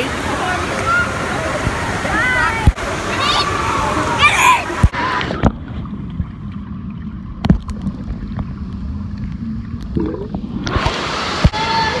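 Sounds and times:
water splashing: 0.0 - 12.0
muffled underwater gurgling: 7.1 - 11.0.

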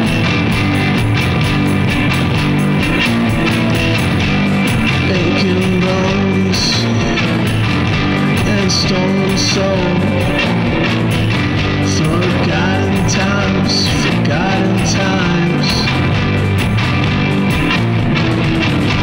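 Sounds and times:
bass guitar: 0.0 - 19.0
electric guitar: 0.0 - 19.0
man singing: 4.9 - 16.2.

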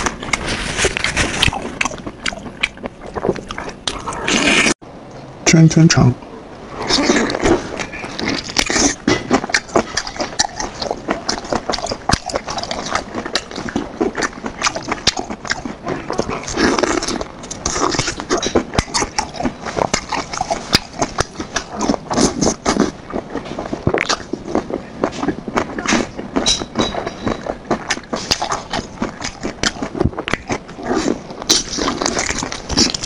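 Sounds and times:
close chewing with mouth clicks: 0.0 - 4.8, 6.9 - 33.0.

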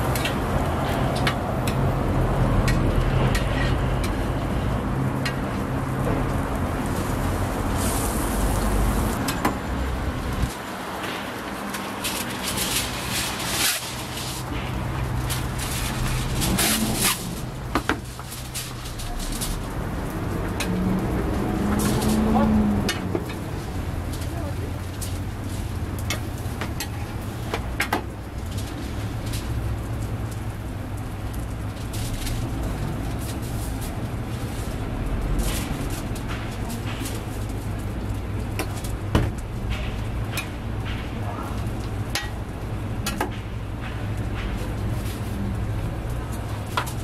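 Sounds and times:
crackling hiss: 6.8 - 38.6
aluminium foil crinkling: 10.2 - 40.2.

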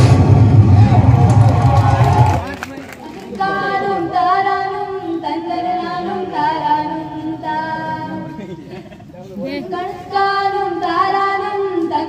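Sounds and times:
young woman singing: 3.4 - 8.2, 9.4 - 12.0.

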